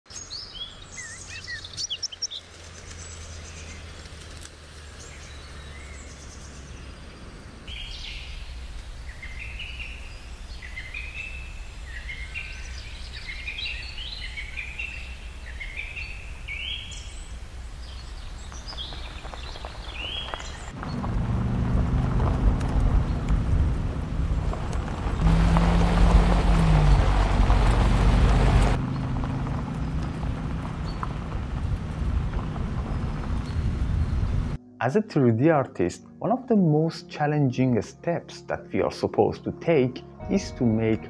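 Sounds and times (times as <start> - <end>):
birds chirping and calling: 0.1 - 4.0, 5.0 - 20.8
low steady rumble: 20.8 - 34.6.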